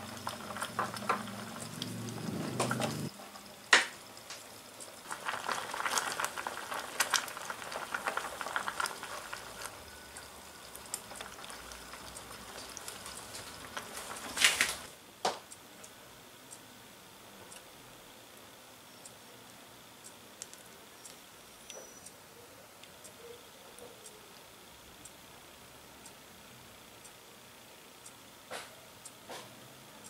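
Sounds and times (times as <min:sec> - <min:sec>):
soup bubbling: 0:00.0 - 0:14.9.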